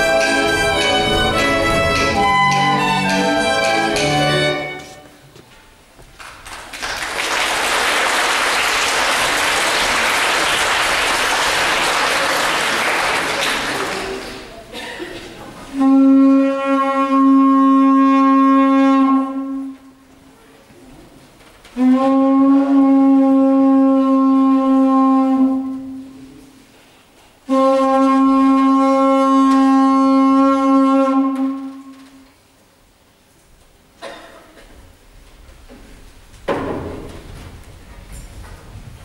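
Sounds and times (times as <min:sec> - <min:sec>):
horn long held notes: 0:00.0 - 0:05.2, 0:15.7 - 0:20.0, 0:21.8 - 0:26.5, 0:27.5 - 0:32.2.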